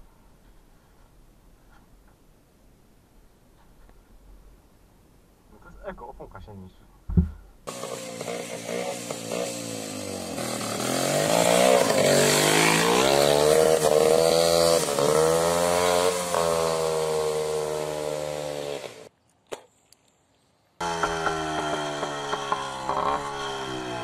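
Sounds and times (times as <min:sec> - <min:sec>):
motorcycle engine revving: 0:07.7 - 0:19.1, 0:20.8 - 0:24.0.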